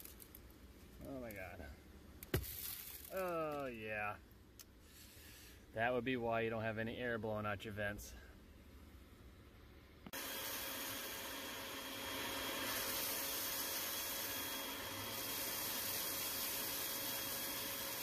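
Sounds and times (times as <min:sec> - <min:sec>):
vacuum cleaner running: 0:10.1 - 0:18.0.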